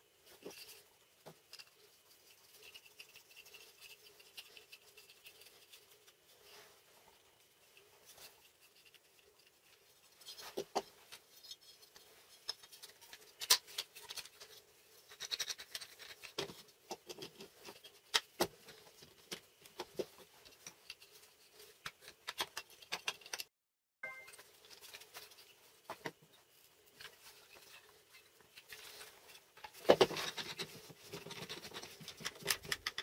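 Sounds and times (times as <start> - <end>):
wooden blocks clicking and knocking: 15.1 - 21.0, 21.8 - 23.5, 29.6 - 33.0.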